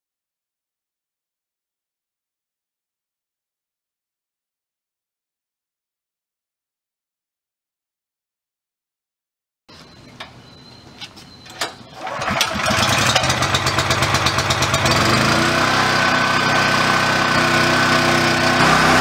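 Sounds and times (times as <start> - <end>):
pressure washer engine running: 12.0 - 19.0.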